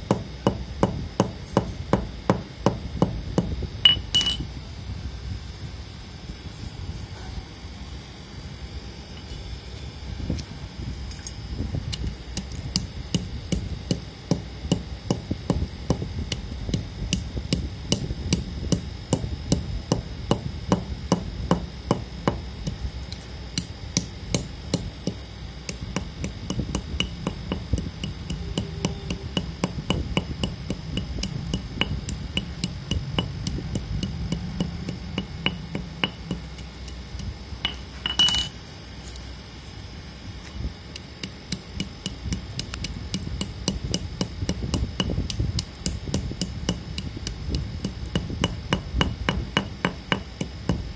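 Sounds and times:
metal rod tapping crunching clay: 3.9 - 4.5, 33.4 - 38.6.

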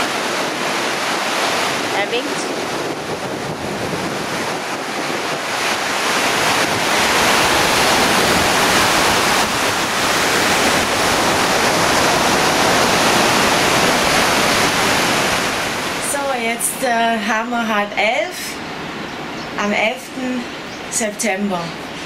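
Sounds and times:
surf breaking on beach: 0.0 - 16.6
wind buffeting microphone: 0.0 - 17.1.

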